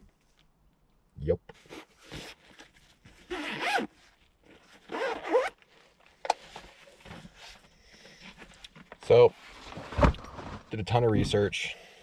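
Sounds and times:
zipper of a case pulled open: 3.2s - 5.6s.

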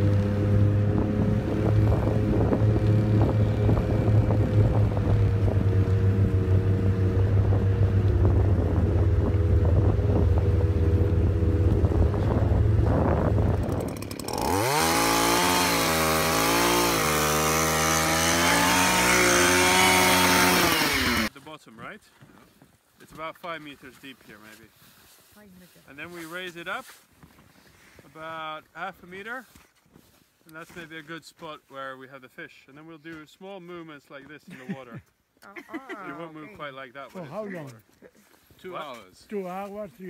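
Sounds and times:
snowmobile engine running: 0.0s - 21.3s
ice auger boring into ice: 13.6s - 21.3s.

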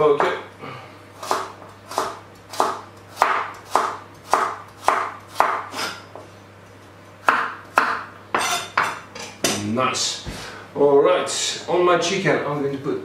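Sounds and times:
knife chopping on wooden board: 1.2s - 6.2s, 7.2s - 9.6s.

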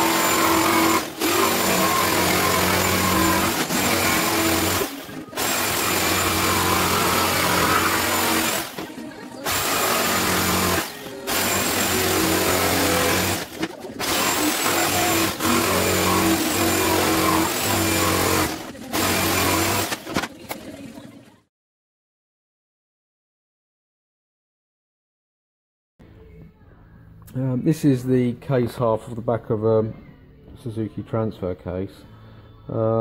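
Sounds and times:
electric jigsaw cutting wood: 0.0s - 20.2s.

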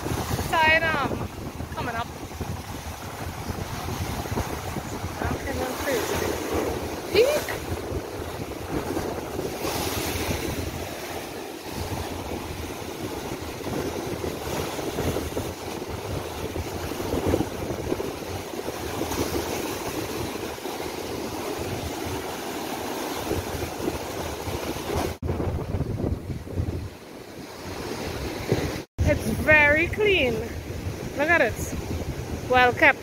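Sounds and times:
sea surf breaking: 0.0s - 33.0s
wind buffeting microphone: 0.0s - 33.0s.

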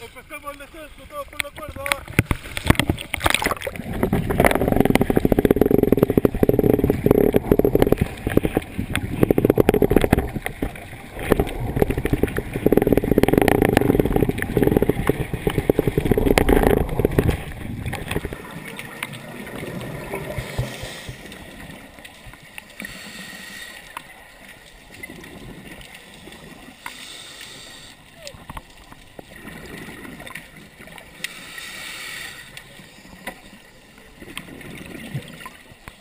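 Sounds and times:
underwater exhaust bubbling: 0.6s - 36.0s.

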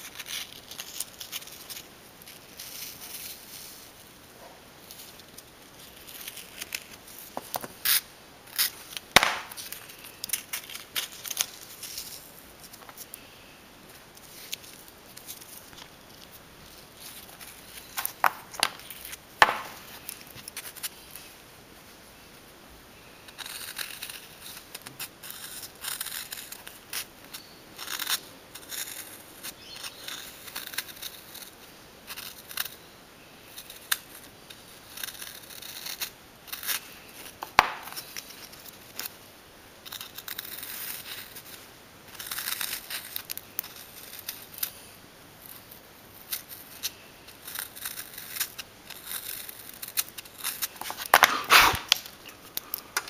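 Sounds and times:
metal tool scraping bone: 46.2s - 52.0s.

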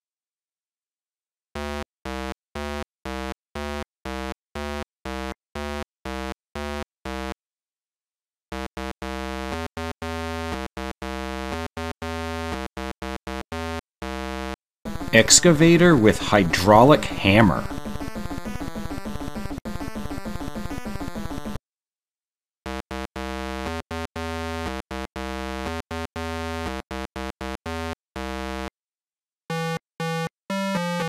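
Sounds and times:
synthesized buzzing pulses: 14.2s - 21.6s.

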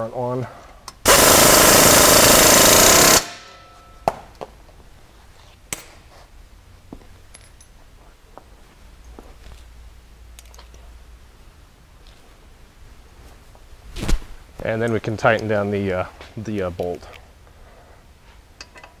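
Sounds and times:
pneumatic impact wrench hammering: 1.0s - 3.6s.

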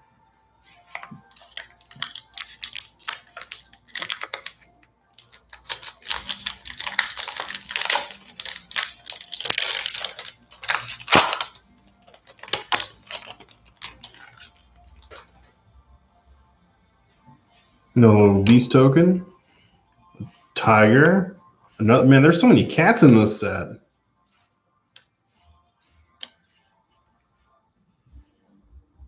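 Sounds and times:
foil pack crinkling: 0.9s - 15.3s.

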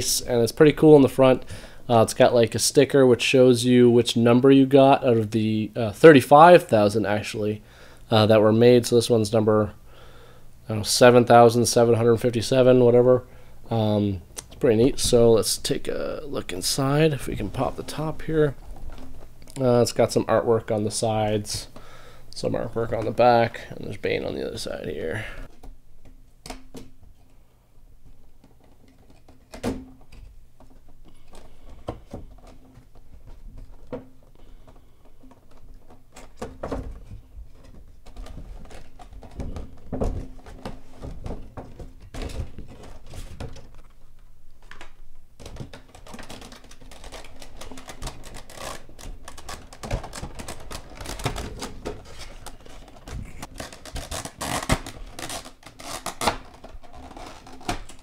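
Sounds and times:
plastic packaging crinkling: 37.1s - 58.0s.

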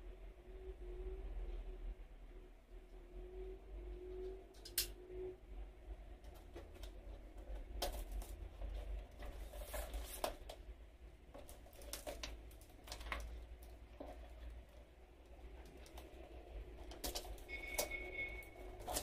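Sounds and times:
cardboard box handled: 6.4s - 10.6s.

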